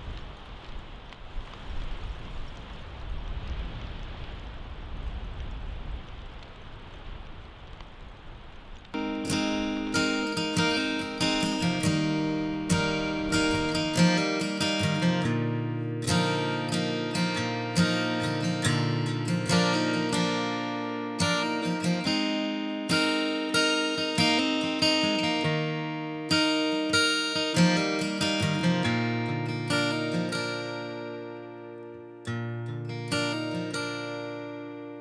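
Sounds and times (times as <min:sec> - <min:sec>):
acoustic guitar plucked notes: 0:09.0 - 0:35.0.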